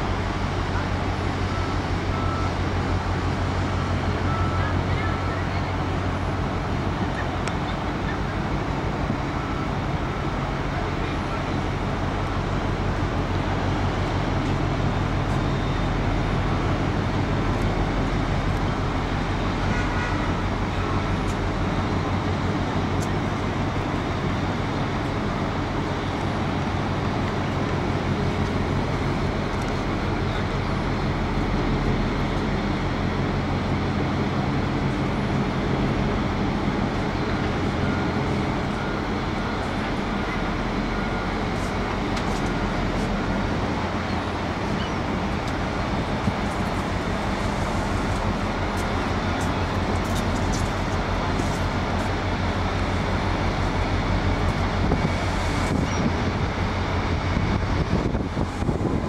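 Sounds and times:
low mechanical rumble: 20.5 - 59.0.

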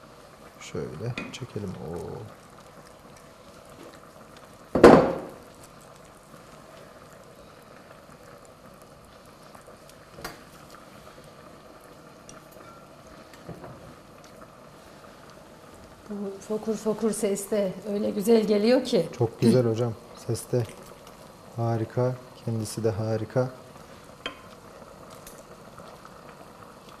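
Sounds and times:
soup bubbling in a pot: 0.0 - 27.0
loud knock: 4.8 - 5.3.

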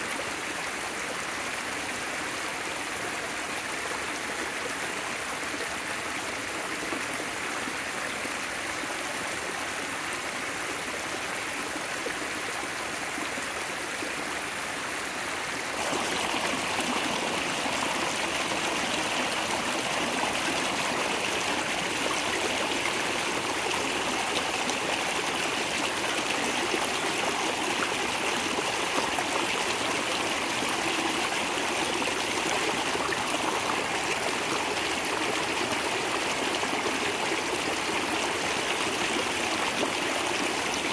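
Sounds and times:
creek rushing over rocks: 8.2 - 40.9.

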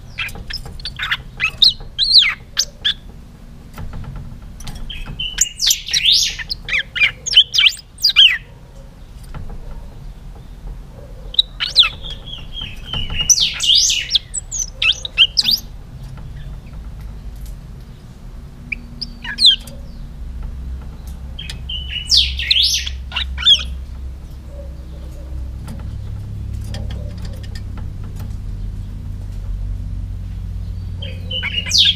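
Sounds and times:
bird singing whistled notes: 4.9 - 8.4, 11.3 - 15.7, 18.7 - 20.0, 21.4 - 23.8, 30.6 - 31.9.

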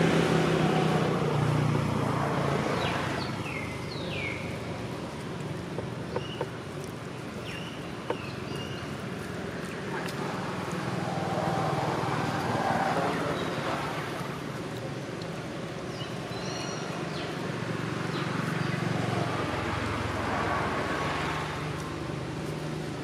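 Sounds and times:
vehicle engine humming: 0.0 - 23.0.

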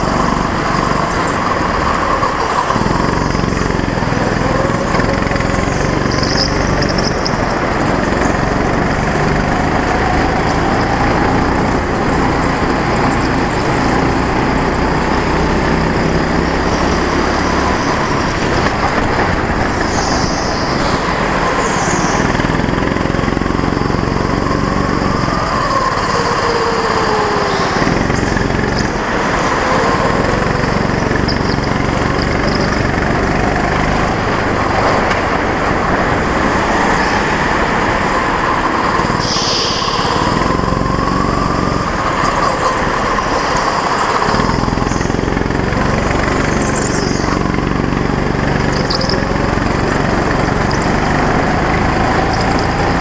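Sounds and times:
go-kart engine running: 0.0 - 53.0
short high squeals: 19.7 - 33.7, 36.8 - 53.0.

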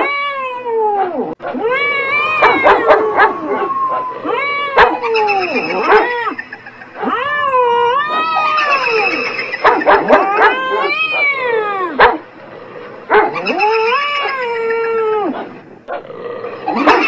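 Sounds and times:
cat yowling: 0.0 - 12.2, 13.1 - 15.6, 16.7 - 17.0
dog barking: 2.4 - 4.0, 4.8 - 6.2, 8.1 - 11.4, 12.0 - 12.2, 13.1 - 13.5, 16.8 - 17.0.

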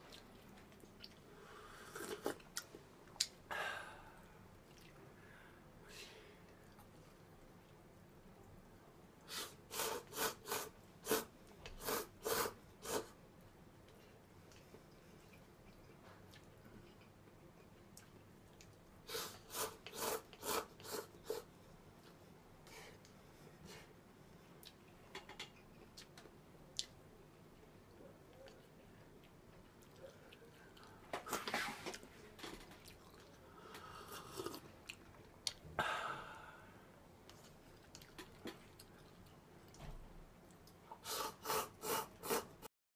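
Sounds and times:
person chewing: 0.1 - 3.4, 4.6 - 5.0, 32.8 - 35.6, 37.3 - 39.8
person slurping noodles: 1.6 - 2.4, 9.3 - 13.2, 19.1 - 21.5, 33.8 - 34.7, 41.0 - 42.7.

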